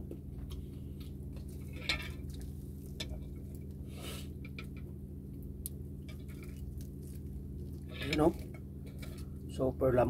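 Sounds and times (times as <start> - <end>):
steady low hum: 0.0 - 10.0
wet chewing: 5.4 - 9.4
fried meat tearing: 5.7 - 9.2.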